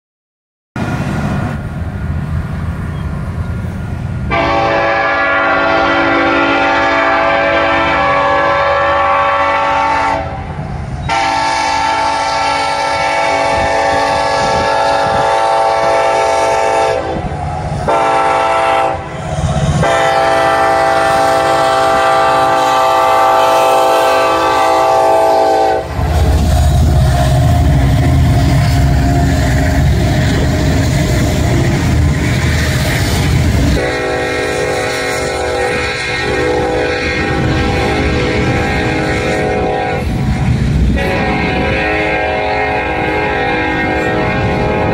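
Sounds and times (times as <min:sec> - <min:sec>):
locomotive air horn blasts: 0:04.3 - 0:44.9
low rumble: 0:25.8 - 0:33.8.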